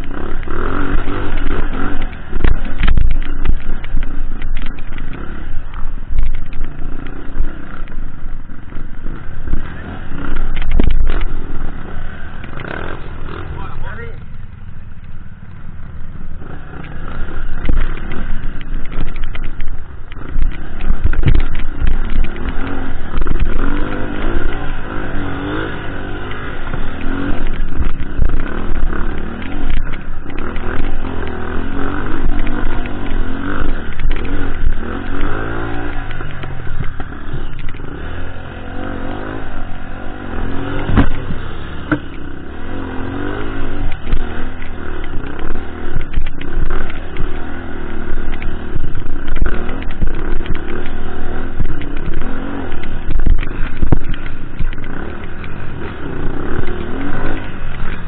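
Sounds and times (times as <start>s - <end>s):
dirt bike engine revving: 0.0s - 14.8s, 15.9s - 58.0s
rattles and knocks from bumps: 10.3s - 13.2s, 16.8s - 24.8s, 39.1s - 58.0s.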